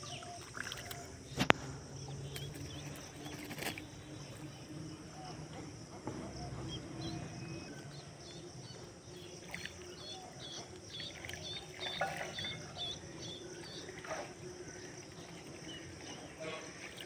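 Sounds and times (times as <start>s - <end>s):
bird splashing in water: 0.2s - 4.4s, 9.1s - 17.0s.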